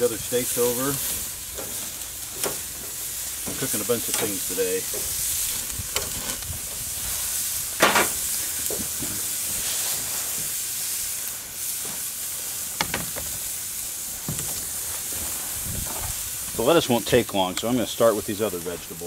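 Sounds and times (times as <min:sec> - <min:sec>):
steaks sizzling on grill: 0:00.0 - 0:19.0.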